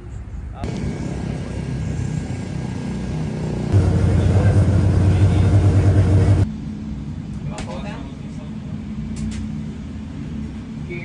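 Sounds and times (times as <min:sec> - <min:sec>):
race car engines droning: 0:00.6 - 0:07.3.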